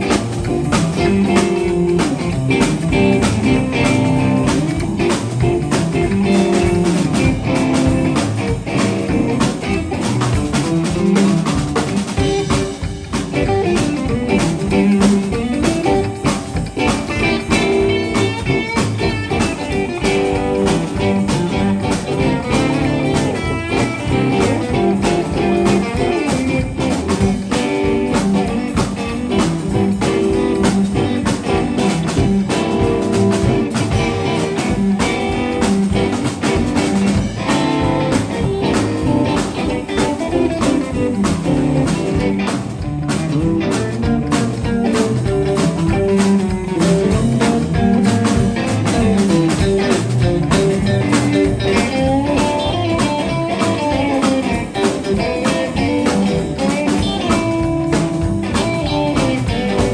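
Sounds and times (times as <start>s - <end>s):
drum kit: 0.0s - 59.9s
electric guitars: 0.0s - 59.9s
upright bass: 0.0s - 59.9s.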